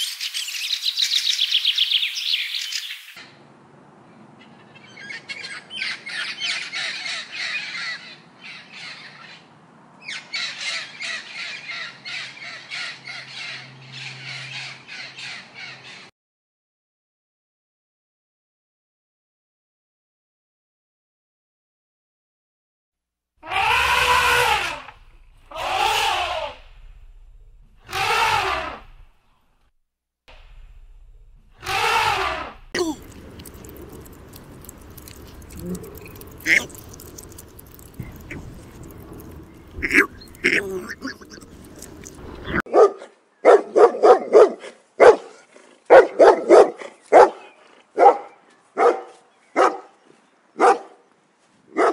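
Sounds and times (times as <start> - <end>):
elephant trumpeting: 23.4 - 26.8, 27.8 - 29.0, 31.6 - 42.6
dog barking: 42.5 - 49.9, 50.6 - 51.0.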